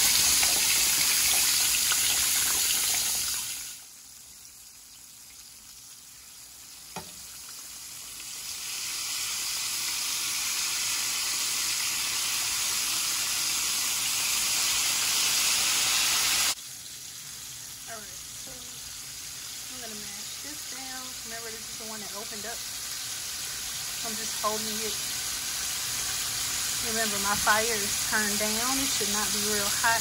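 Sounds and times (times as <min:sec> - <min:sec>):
wings frying in hot oil: 0:00.0 - 0:30.0.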